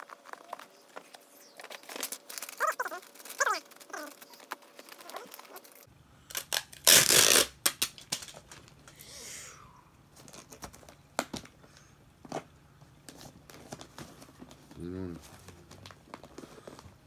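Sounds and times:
paper rustling and crinkling: 0:00.0 - 0:05.9, 0:13.0 - 0:17.0.

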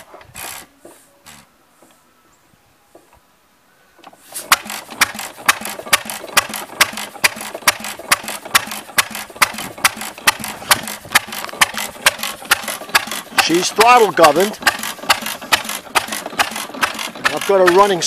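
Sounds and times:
stationary engine popping: 0:04.4 - 0:18.0.

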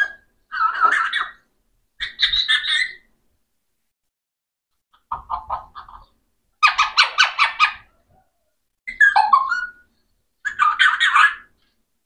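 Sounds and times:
parakeet squawking: 0:02.0 - 0:03.0, 0:05.1 - 0:07.9, 0:10.4 - 0:11.5.

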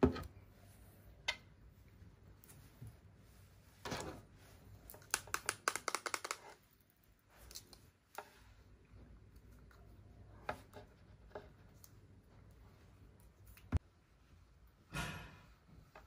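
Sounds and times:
plastic brush clicks and taps: 0:04.9 - 0:06.5.

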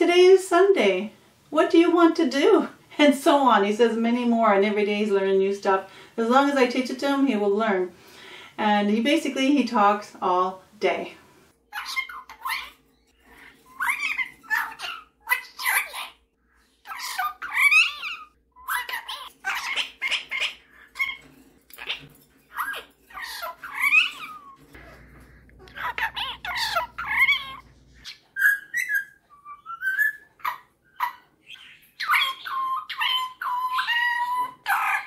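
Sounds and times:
parrot chattering and whistling: 0:11.6 - 0:35.0
parrot whistling a tune: 0:13.6 - 0:15.0, 0:25.7 - 0:35.0.

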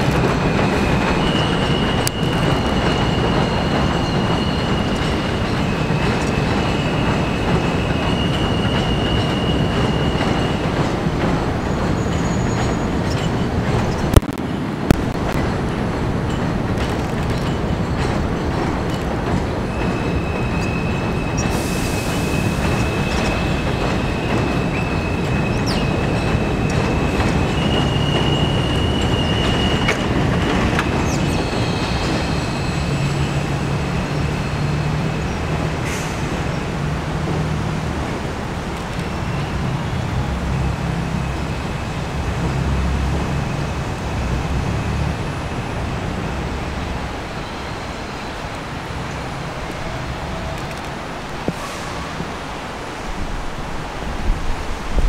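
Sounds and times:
steel wheel squeal: 0:00.0 - 0:14.0, 0:17.4 - 0:36.6
train rumble: 0:00.0 - 0:55.0.

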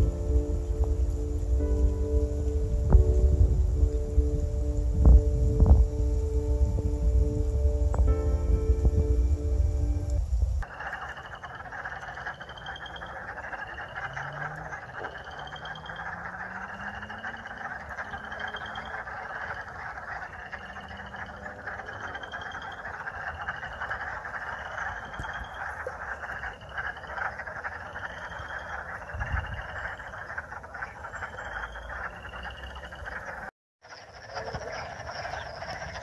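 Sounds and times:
frog rising trill: 0:00.0 - 0:33.5
chorus of frogs calling: 0:10.6 - 0:36.0.

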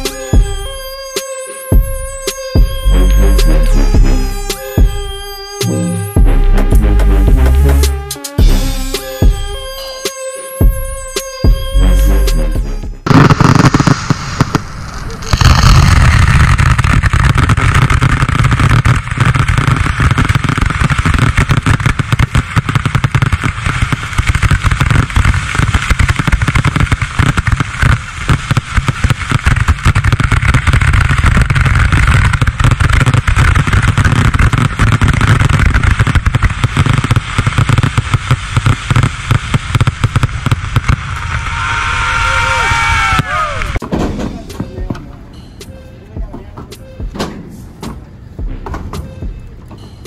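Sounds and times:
fireworks popping and crackling: 0:00.0 - 0:05.9, 0:13.0 - 0:45.2
fireworks rumble: 0:00.0 - 0:50.0.

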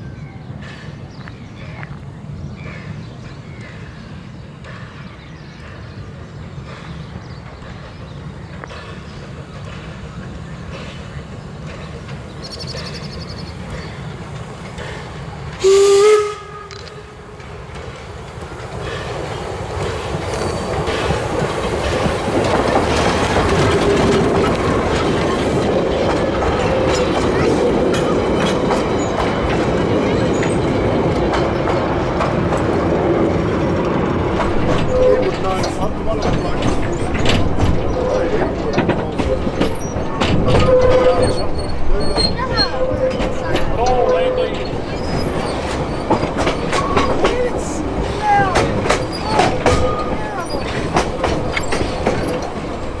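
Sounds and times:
train passing: 0:00.0 - 0:53.0
wheels clicking over rail joints: 0:04.6 - 0:53.0
steam locomotive whistle: 0:15.6 - 0:17.2, 0:40.5 - 0:41.4.

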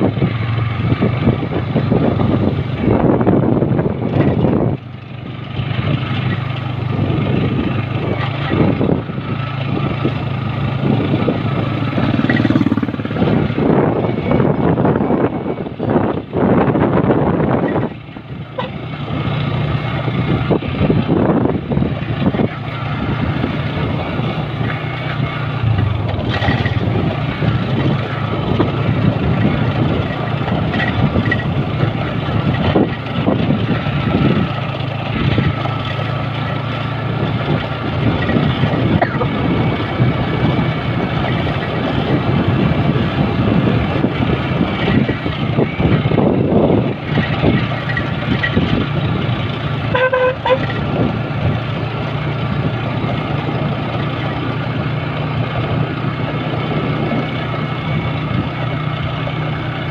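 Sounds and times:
motorcycle engine cruising: 0:00.0 - 0:59.9
tyre and wind noise: 0:00.0 - 0:59.9.

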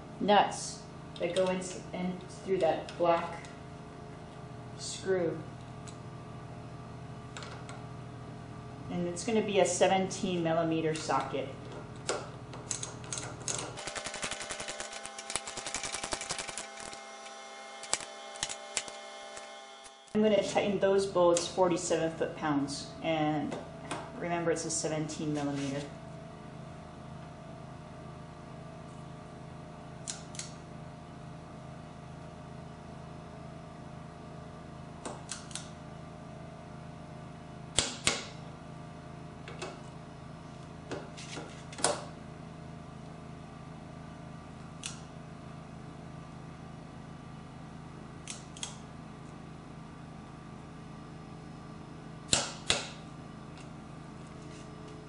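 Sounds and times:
low hum: 0:00.0 - 0:30.7.

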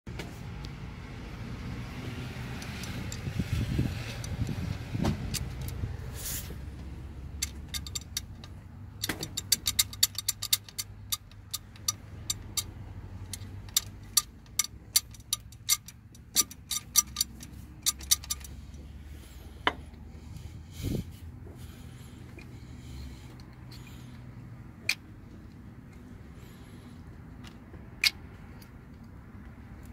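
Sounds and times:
metal chain clicking and clacking: 0:07.2 - 0:18.8.

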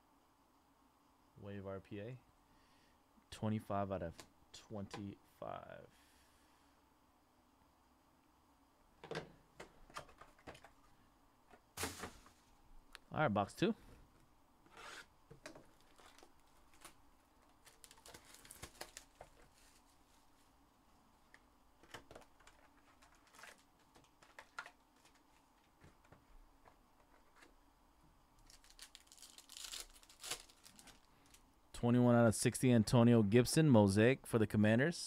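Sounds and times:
foil packs crackling: 0:15.7 - 0:20.1, 0:22.1 - 0:25.7, 0:28.4 - 0:31.4.

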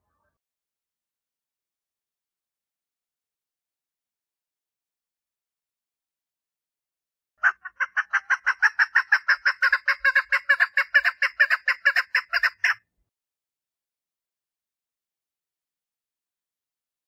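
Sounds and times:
partridge clucking call: 0:07.4 - 0:12.8.

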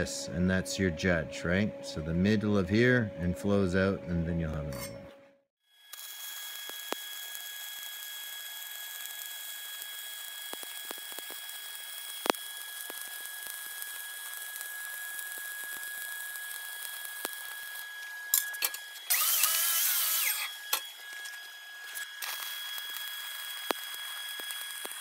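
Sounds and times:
welding arc crackling and hissing: 0:05.9 - 0:25.0.

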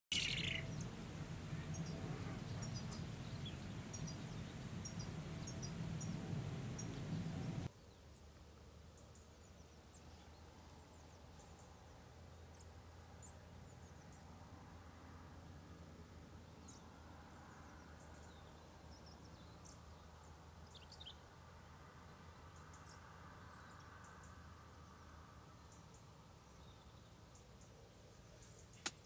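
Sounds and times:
distant small birds chirping: 0:00.0 - 0:15.4, 0:16.3 - 0:29.0
steady low rumble: 0:00.1 - 0:07.7.

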